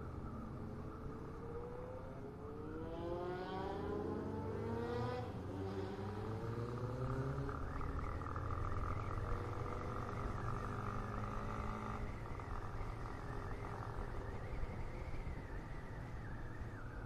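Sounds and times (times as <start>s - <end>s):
road and wind rumble: 0.0s - 17.0s
motorcycle engine accelerating: 2.8s - 14.2s.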